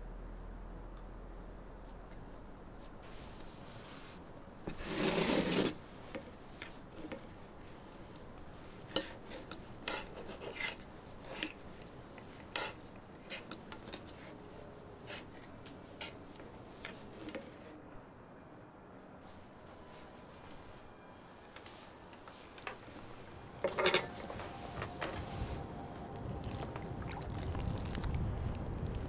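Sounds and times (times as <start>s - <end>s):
rasping scrape: 9.0s - 11.6s.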